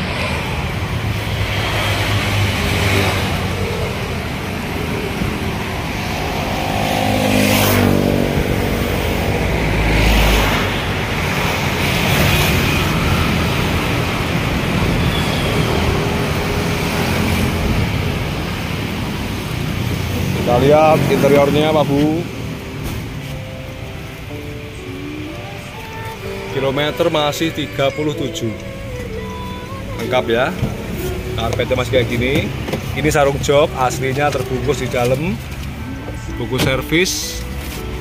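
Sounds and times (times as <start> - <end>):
vehicle passing close by: 0.0 - 23.2
road traffic rumble: 0.0 - 38.0.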